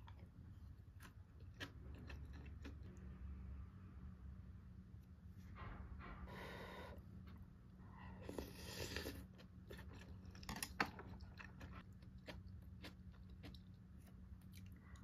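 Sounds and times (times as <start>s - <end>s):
chewing crunchy food: 0.0s - 2.9s, 8.3s - 15.0s.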